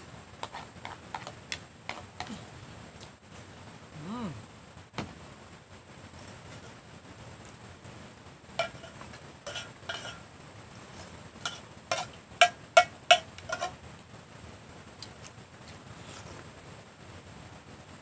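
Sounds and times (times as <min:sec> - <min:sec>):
metal spoon clinking in a pot: 0:08.6 - 0:10.2, 0:11.5 - 0:13.7.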